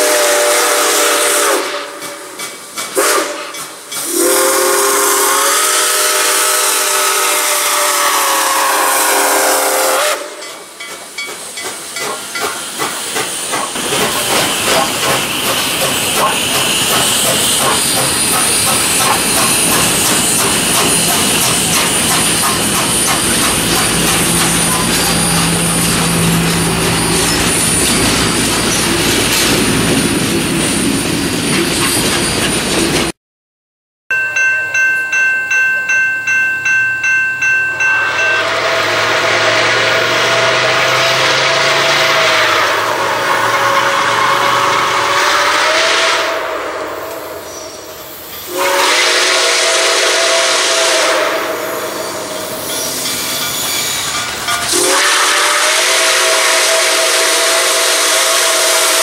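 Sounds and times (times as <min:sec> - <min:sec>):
steam whistle blasts: 0:00.0 - 0:10.6, 0:16.1 - 0:28.4, 0:37.8 - 0:54.1, 0:54.7 - 0:59.0
locomotive wheels rumbling: 0:09.7 - 0:33.1
locomotive bell ringing: 0:10.4 - 0:12.7, 0:16.2 - 0:29.0, 0:34.1 - 0:39.6, 0:51.9 - 0:55.0.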